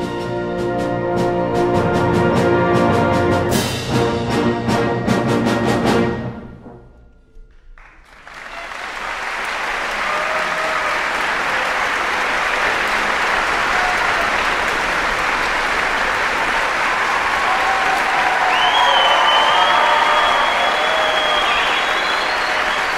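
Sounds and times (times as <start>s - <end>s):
audience applauding: 7.8s - 22.9s
audience calls: 8.1s - 22.9s
high whistle: 18.3s - 22.9s.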